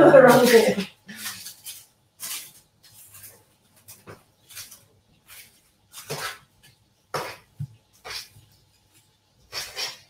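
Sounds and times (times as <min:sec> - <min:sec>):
utensil scraping metal tray: 0:09.5 - 0:10.0.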